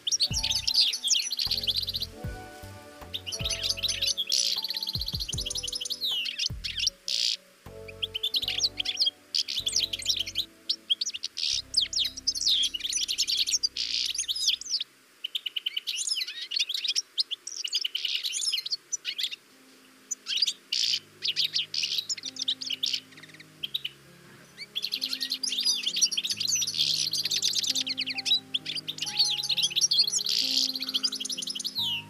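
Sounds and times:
soft background music: 0.0s - 14.8s, 18.3s - 32.0s
goldfinch twittering: 20.1s - 32.0s.

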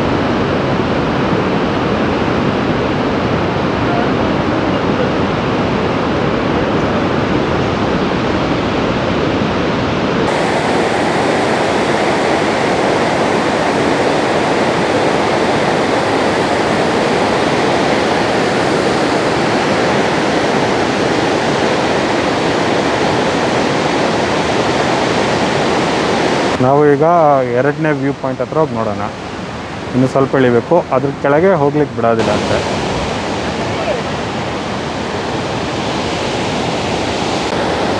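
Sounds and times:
waterfall rushing: 10.2s - 37.9s.

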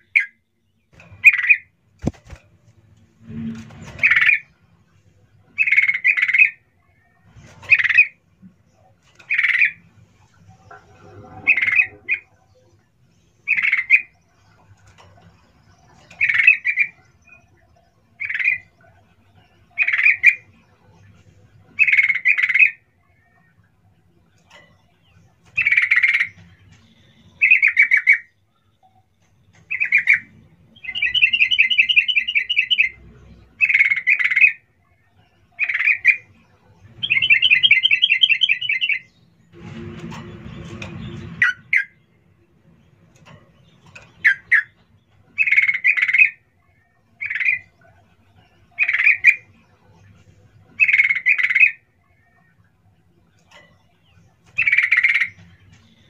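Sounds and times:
bird cuk calls: 29.7s - 33.0s, 44.2s - 47.8s.

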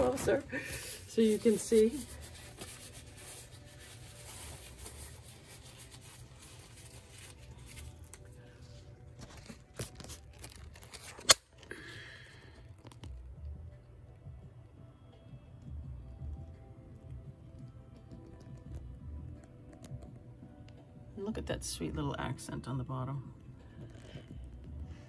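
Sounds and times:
paper towel rustling and tearing: 0.0s - 11.4s.

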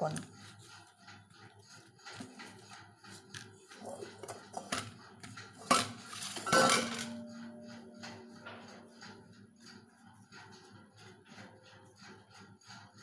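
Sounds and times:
dough kneaded in a steel bowl: 0.0s - 13.0s
steel bowl clanking and ringing: 6.4s - 8.6s.

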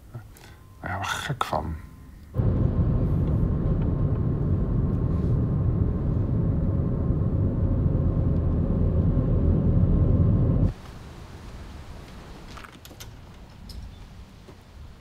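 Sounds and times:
car driving rumble from inside: 2.4s - 10.7s.

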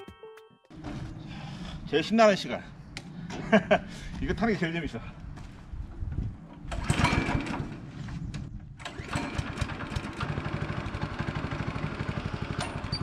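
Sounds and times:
small engine starting and idling: 6.6s - 13.0s.

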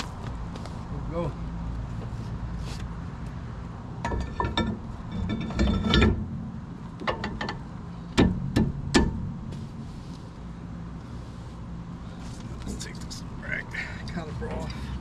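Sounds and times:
metal clinks and scrapes: 4.0s - 6.2s
sharp metallic knocks: 7.0s - 9.4s.

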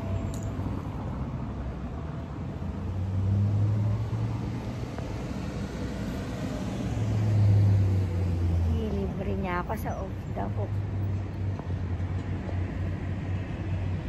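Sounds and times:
passing vehicle engine hum: 0.0s - 14.0s
street traffic noise: 0.0s - 14.0s.

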